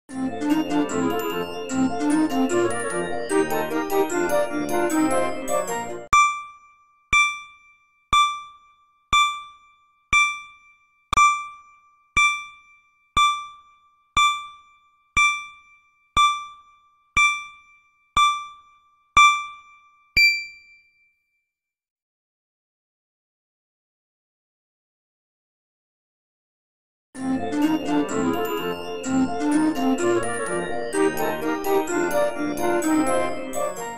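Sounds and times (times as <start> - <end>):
electronic timer ding: 6.1 - 21.2.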